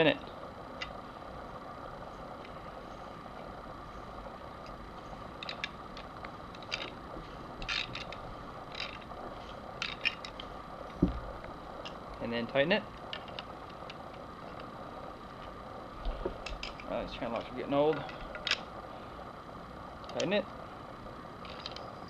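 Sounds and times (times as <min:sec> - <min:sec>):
low thump: 0:11.0 - 0:11.3.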